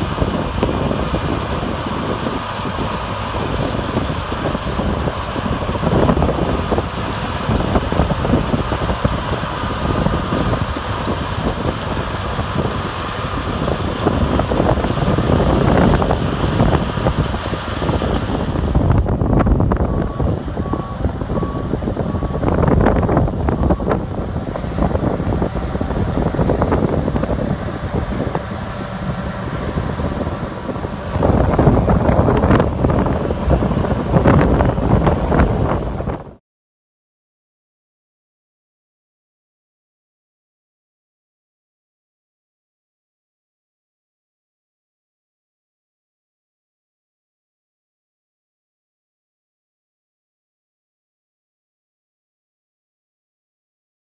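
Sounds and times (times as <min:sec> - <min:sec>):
combine harvester running: 0:00.0 - 0:36.4
wind buffeting microphone: 0:00.0 - 0:36.4.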